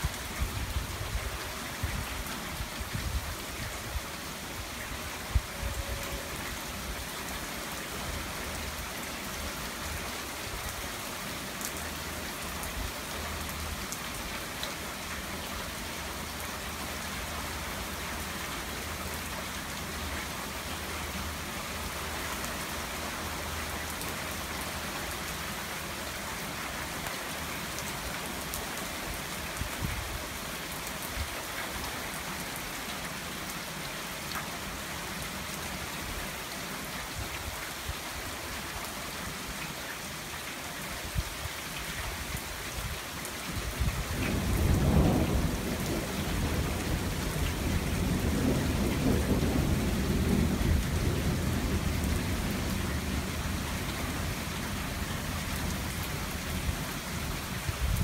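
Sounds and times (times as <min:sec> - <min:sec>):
steady rain: 0:00.0 - 0:58.0
low roll of thunder: 0:43.9 - 0:53.5.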